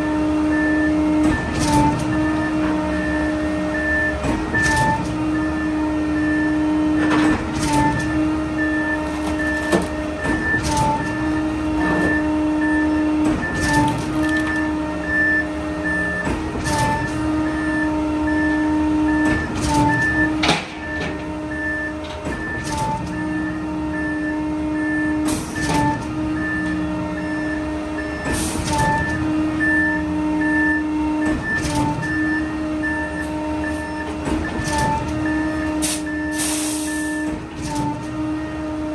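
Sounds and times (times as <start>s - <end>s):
concrete truck mechanical hum: 0.0s - 38.9s
metal clanks and knocks: 19.3s - 21.3s.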